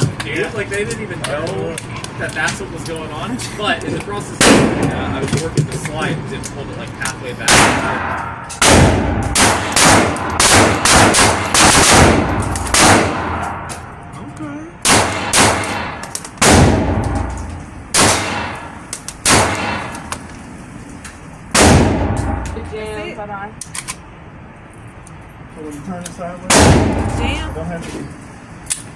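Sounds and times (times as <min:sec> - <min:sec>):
pistol shots echoing indoors: 0:07.5 - 0:13.6, 0:14.9 - 0:17.3.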